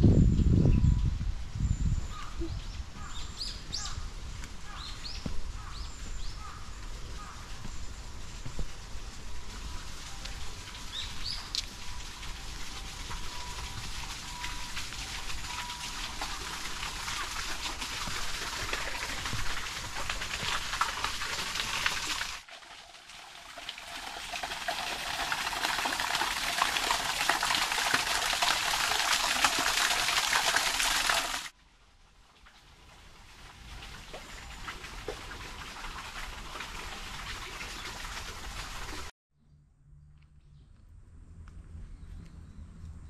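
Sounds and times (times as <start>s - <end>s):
water rushing over rocks: 10.9s - 31.5s.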